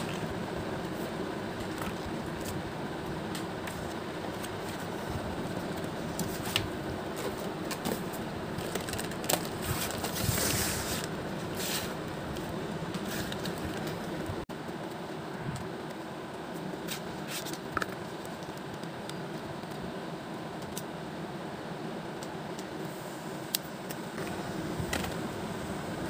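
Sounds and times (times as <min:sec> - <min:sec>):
steady background hum: 0:00.0 - 0:26.0
paper rustling: 0:03.3 - 0:12.0.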